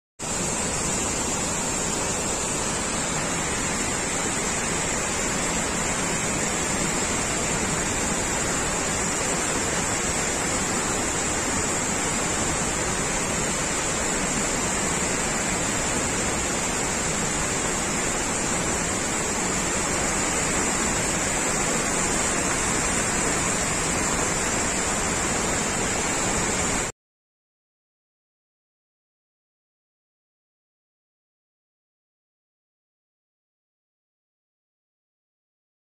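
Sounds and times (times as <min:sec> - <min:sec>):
waterfall rushing: 0:00.2 - 0:26.9.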